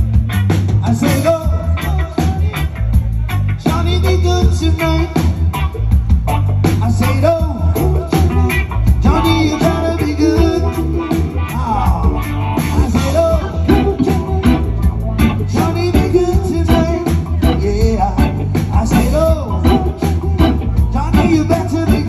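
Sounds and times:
live band playing upbeat song: 0.0s - 22.0s
person singing: 6.8s - 22.0s.

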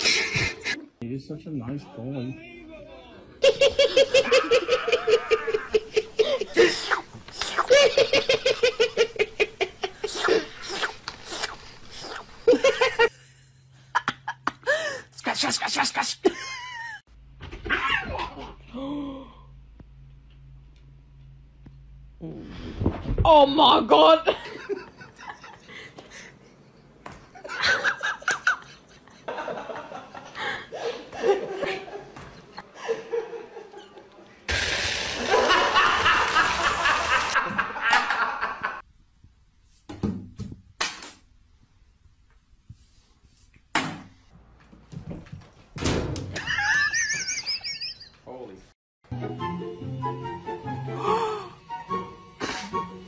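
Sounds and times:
person laughing: 3.4s - 10.8s, 12.4s - 13.2s, 13.9s - 17.0s, 35.2s - 38.8s, 46.4s - 48.2s.

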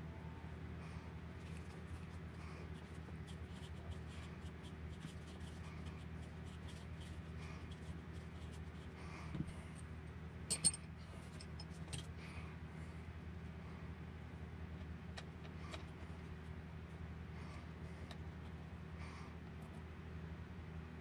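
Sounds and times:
tools clicking and tapping: 10.5s - 10.8s
metallic clatter of tool: 10.5s - 12.1s.

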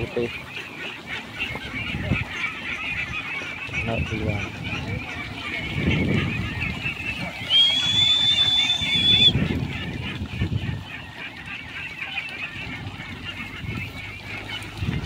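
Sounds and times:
ducklings quacking: 0.0s - 15.0s.

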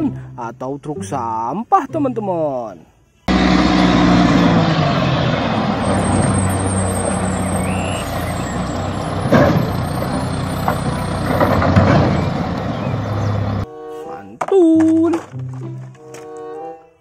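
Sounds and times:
garbage truck engine running: 3.3s - 13.7s.

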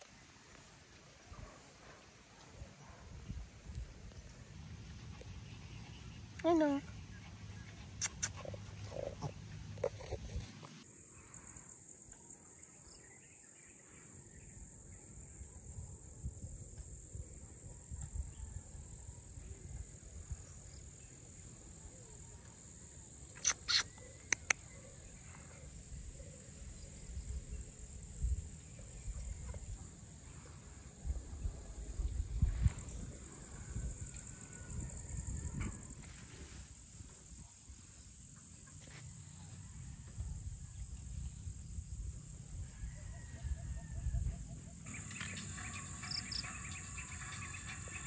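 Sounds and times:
wind rumble on microphone: 2.6s - 5.3s, 15.2s - 20.8s, 25.9s - 37.5s, 39.8s - 45.8s
insects droning: 4.0s - 48.0s
short sharp chirps: 23.3s - 24.6s.

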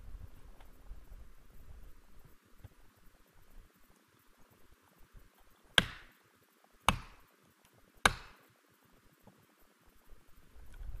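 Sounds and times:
hand tool striking wood: 5.8s - 6.1s, 6.9s - 7.2s, 8.0s - 8.4s.

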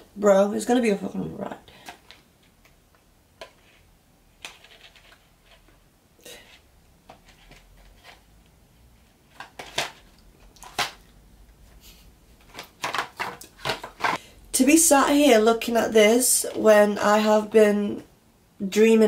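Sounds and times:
cardboard boxes rustling and tapping: 12.4s - 14.2s.

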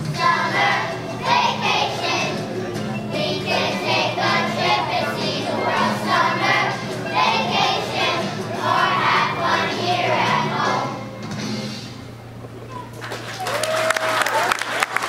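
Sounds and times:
children's choir singing: 0.0s - 11.2s
musical accompaniment: 0.0s - 13.0s.

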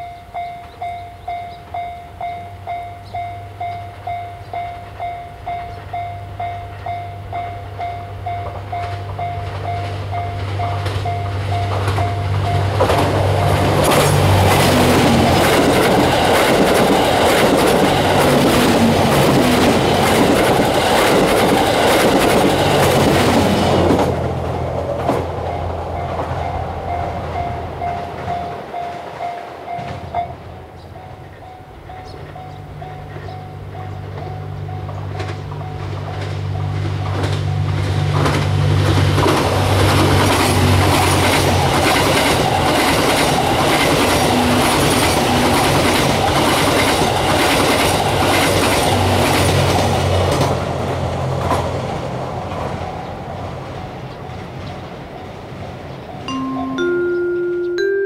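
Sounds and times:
train engine noise: 0.0s - 57.9s
train wheels clattering: 8.3s - 30.3s, 32.0s - 53.0s
level crossing bell dinging: 56.2s - 58.0s.

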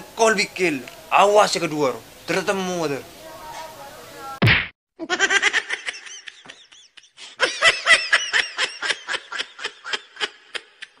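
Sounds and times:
person laughing: 5.0s - 11.0s.

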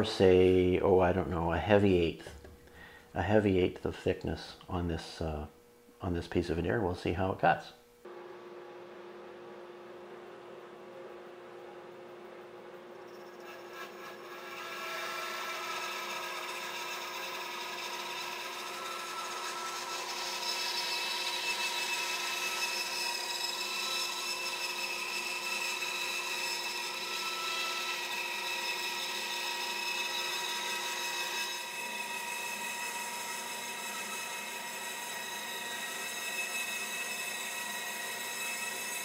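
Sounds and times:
band saw cutting wood: 13.4s - 39.0s.

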